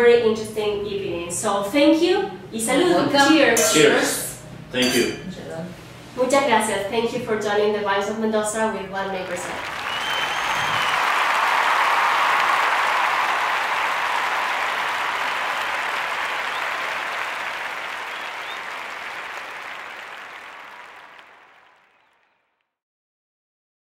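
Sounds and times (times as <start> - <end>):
applause: 9.2 - 22.5.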